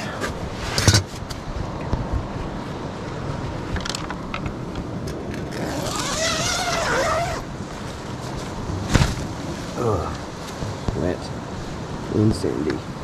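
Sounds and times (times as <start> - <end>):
tent zipper pulled open: 5.4 - 7.5.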